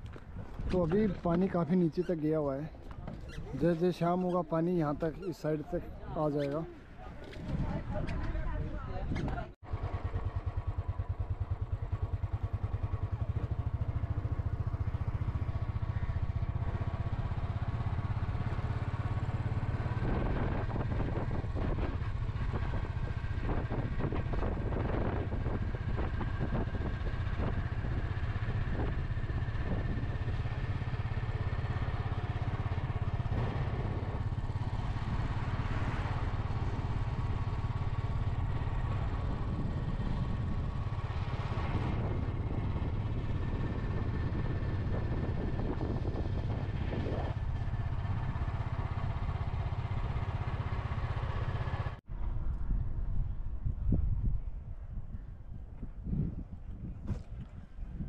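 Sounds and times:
motorcycle engine running: 7.1 - 52.4.

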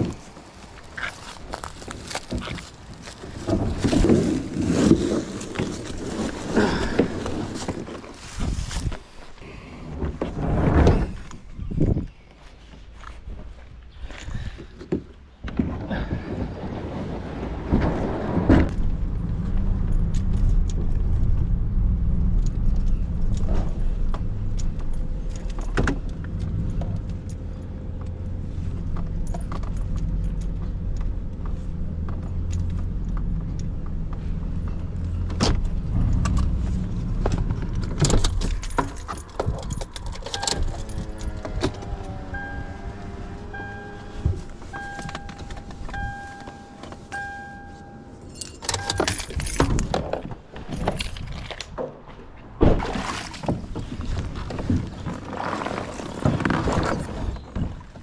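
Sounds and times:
vehicle engine rumble: 0.0 - 58.0
loose gear rattling: 28.8 - 42.4, 48.3 - 51.8
falling electronic tones: 41.8 - 49.0
beeping chime: 42.3 - 49.3.

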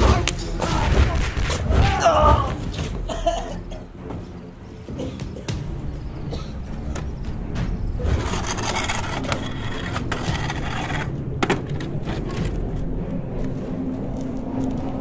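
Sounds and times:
wooden chair scraping concrete: 8.0 - 12.6.

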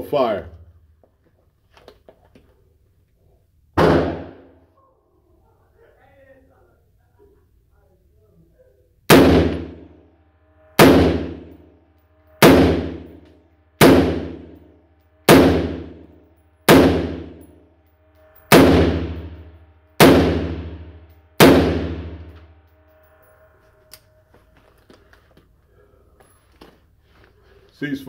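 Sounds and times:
rifle shots echoing indoors: 3.8 - 4.7, 9.1 - 10.1, 10.7 - 24.1.

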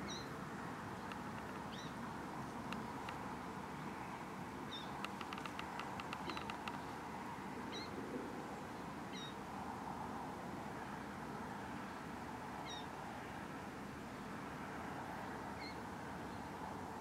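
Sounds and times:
quick run of clicks: 5.0 - 6.8.

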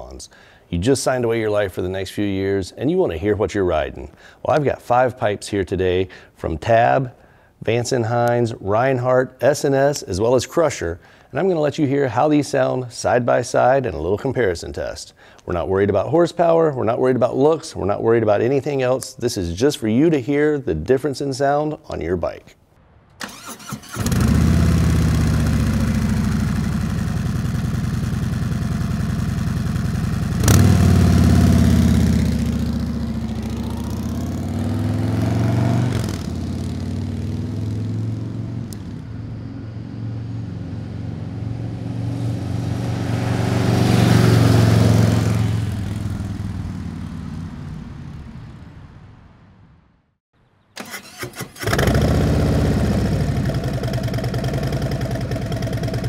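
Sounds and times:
motorcycle engine revving: 23.2 - 47.6, 51.1 - 56.0
motorcycle passing by: 23.3 - 48.1, 51.7 - 56.0.

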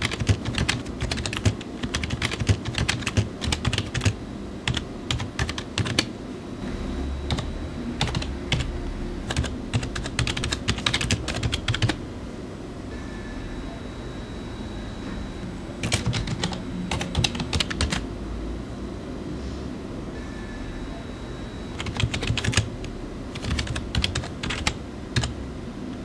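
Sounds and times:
fast typing on keyboard: 0.0 - 6.1, 7.3 - 8.7, 9.3 - 12.0, 15.8 - 18.0, 21.8 - 22.7, 23.3 - 25.3.

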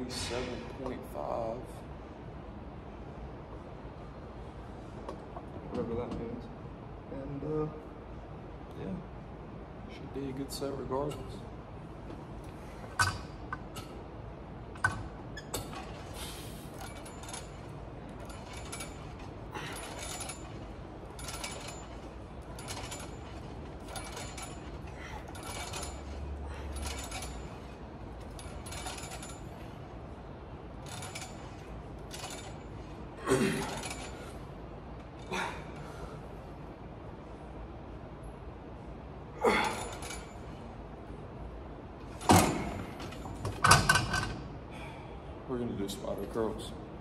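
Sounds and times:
weight machine rush and rattle: 14.7 - 30.0, 30.6 - 36.2, 42.0 - 44.5.

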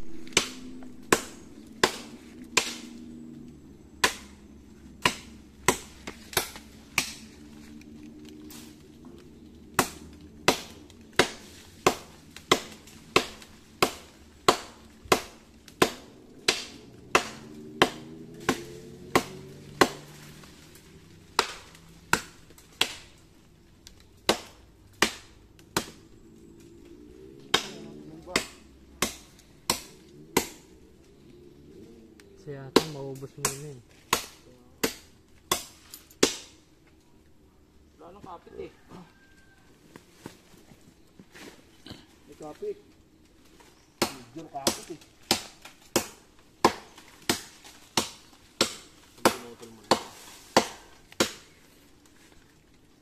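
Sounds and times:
machete chopping into tree trunk: 0.1 - 3.0, 9.8 - 20.3, 44.0 - 51.6.

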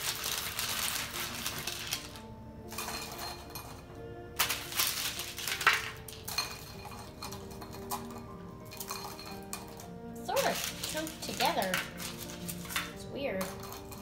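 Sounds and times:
seeds rustling on paper: 0.0 - 2.2, 10.3 - 13.6
background music: 0.0 - 14.0
seeds clinking into glass bowl: 0.0 - 14.0.

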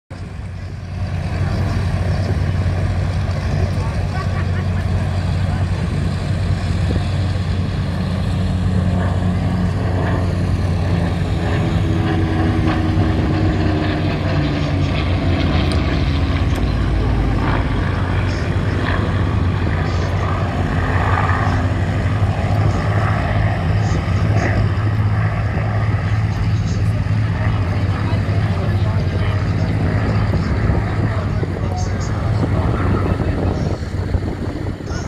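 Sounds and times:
propeller aircraft engines droning: 0.1 - 35.0.

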